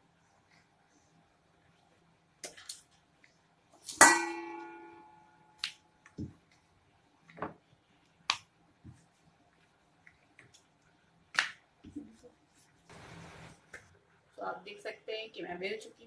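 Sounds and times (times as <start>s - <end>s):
kitchen vessel clink: 3.9s - 5.0s.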